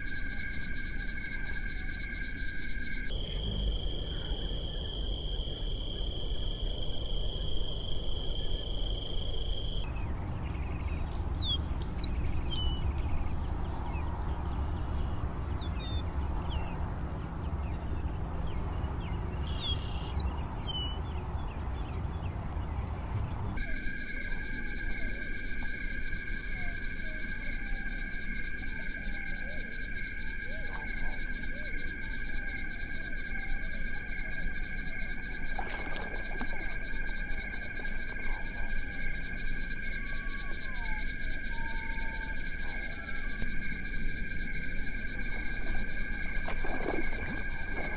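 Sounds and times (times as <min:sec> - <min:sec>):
insects trilling: 0:03.1 - 0:23.6, 0:31.6 - 0:47.9
bird chirps: 0:09.9 - 0:23.6
low rumble: 0:09.9 - 0:23.6.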